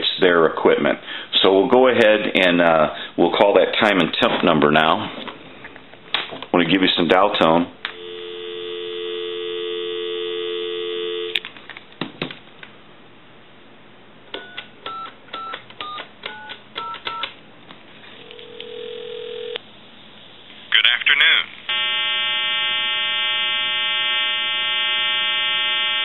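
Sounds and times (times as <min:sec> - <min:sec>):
telephone dial tone: 0:07.9 - 0:11.4, 0:18.2 - 0:19.6
telephone ringback tone: 0:08.0 - 0:11.4, 0:18.3 - 0:19.6, 0:21.7 - 0:26.0.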